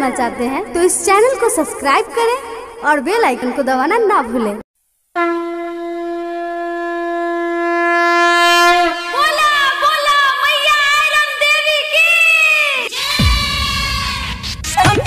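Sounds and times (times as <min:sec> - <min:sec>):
wind instrument melody: 0:05.2 - 0:10.0.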